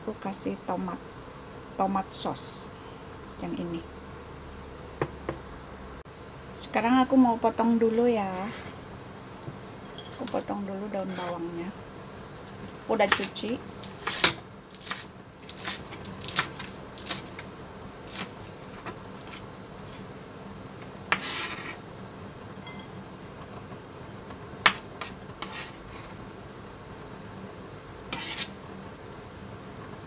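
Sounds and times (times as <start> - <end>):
knife scraping a board: 11.0 - 11.4, 21.1 - 21.8, 25.0 - 26.1, 28.1 - 28.6
knife chopping on wooden board: 24.6 - 25.6.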